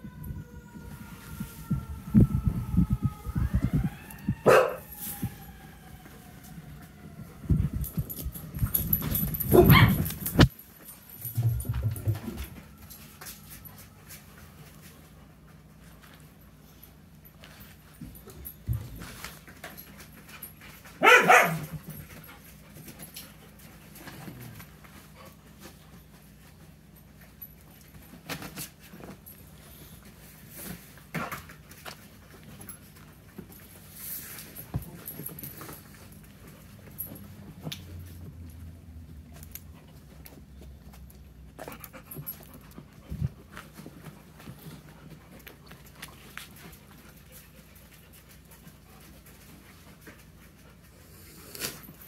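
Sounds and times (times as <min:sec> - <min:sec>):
puppies scuffling: 0:04.5 - 0:52.0
puppies panting: 0:39.6 - 0:51.4.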